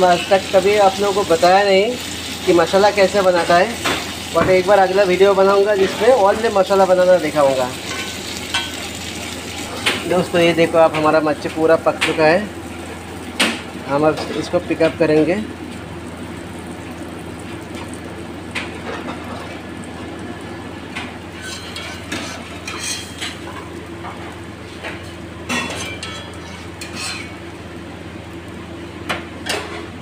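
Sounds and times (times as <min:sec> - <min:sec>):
steady mechanical hum: 0:00.0 - 0:30.0
utensils and dishes clinking: 0:21.4 - 0:23.7, 0:24.9 - 0:27.4.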